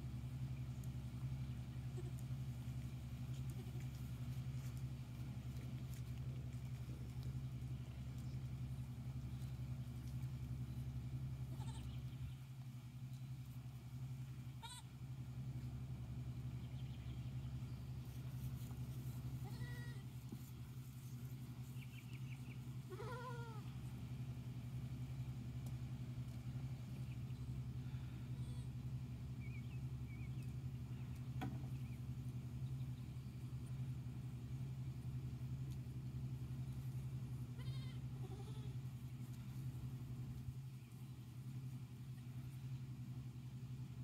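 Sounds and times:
steady low hum: 0.0 - 44.0
goat kid bleating: 1.8 - 2.4, 11.4 - 12.2, 14.5 - 15.0, 19.3 - 20.2, 22.8 - 23.8, 37.4 - 39.0.

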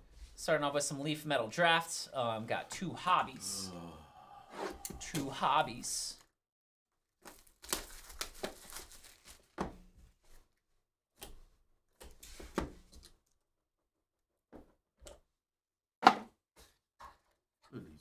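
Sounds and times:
plastic wrap crinkling: 7.2 - 9.6.

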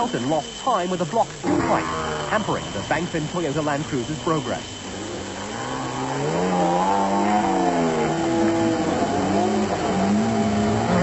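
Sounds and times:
pickup engine revving: 4.9 - 11.0.

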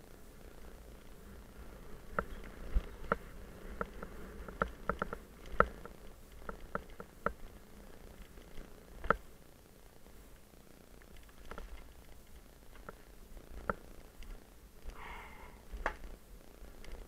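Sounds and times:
wind: 0.0 - 17.0
bike rattling over bumps: 0.4 - 9.4.

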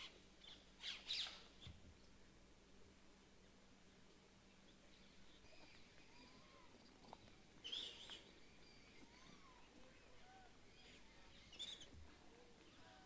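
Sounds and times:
birds chirping: 4.5 - 13.0
sharp high bird calls: 7.6 - 11.9.

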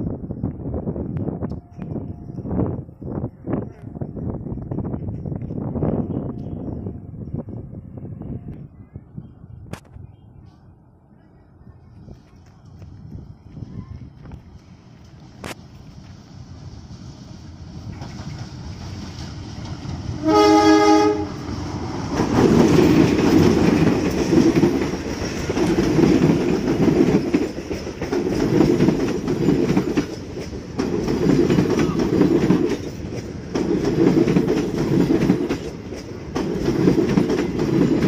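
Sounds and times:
train wheels clickety-clack: 17.8 - 38.0
locomotive horn: 20.2 - 21.5.

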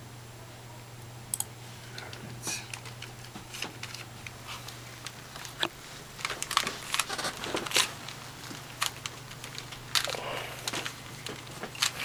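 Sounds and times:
puzzle cube clicking and rattling: 5.5 - 12.0.

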